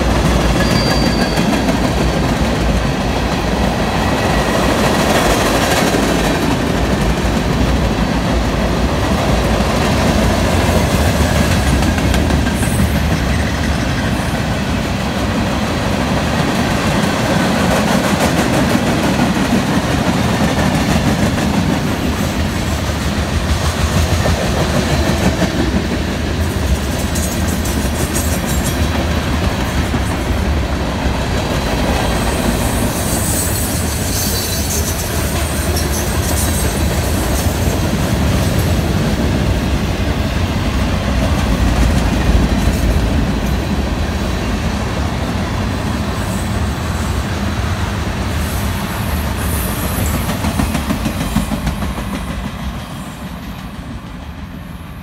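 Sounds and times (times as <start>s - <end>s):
train wheels rolling on rails: 0.0s - 55.0s
high-pitched wheel squeals: 0.5s - 1.7s.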